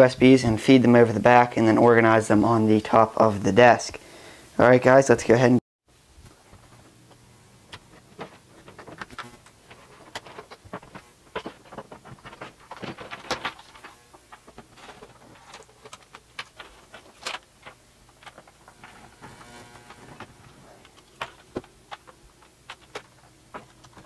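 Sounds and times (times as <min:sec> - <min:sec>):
cables clicking and rustling: 0:06.2 - 0:24.0.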